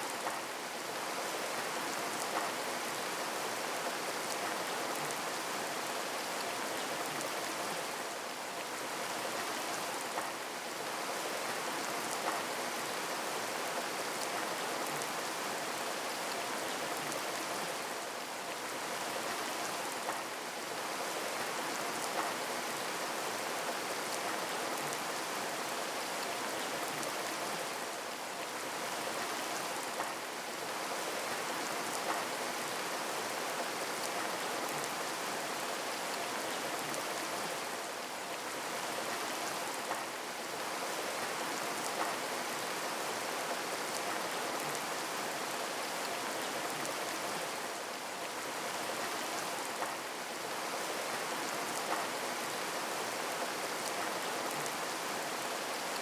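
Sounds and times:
rain falling: 0:00.0 - 0:56.0.

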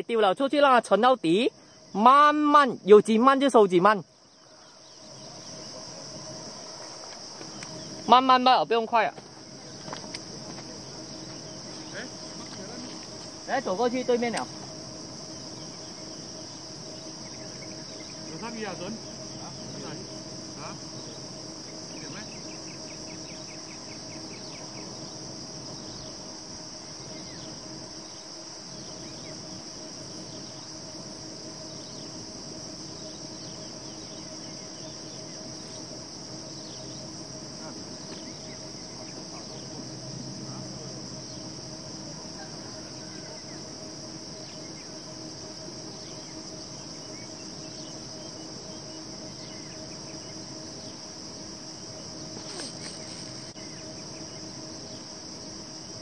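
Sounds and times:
insect chorus drone: 0:00.0 - 0:56.0.

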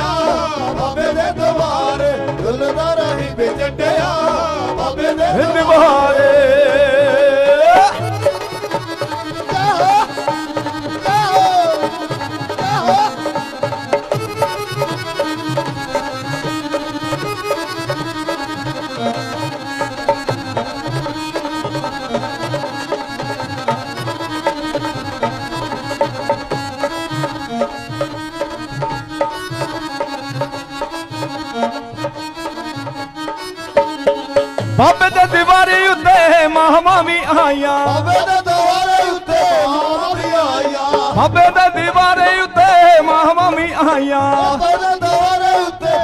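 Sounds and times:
harmonium melody: 0:00.0 - 0:46.0
hand drum beat: 0:07.6 - 0:18.4.

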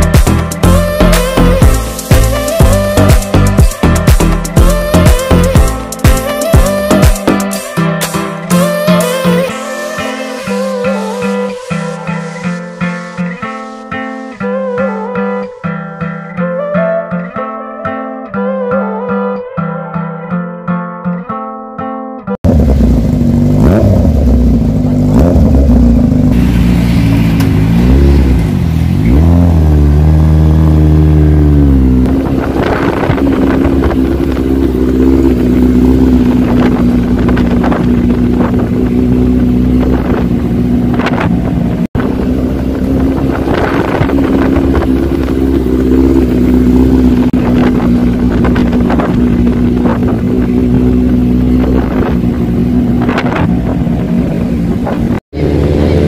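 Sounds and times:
exhaust crackles: 0:22.4 - 0:56.0
motorcycle engine revving: 0:22.4 - 0:56.0.

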